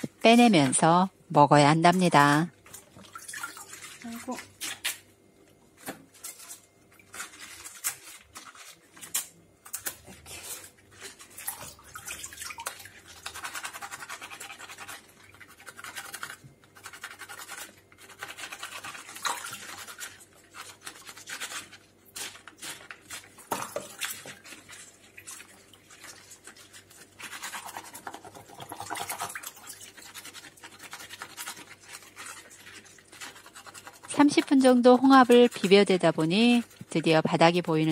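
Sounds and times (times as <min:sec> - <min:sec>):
water drips and splashes: 0:02.2 - 0:04.9, 0:09.8 - 0:13.4, 0:23.0 - 0:37.9.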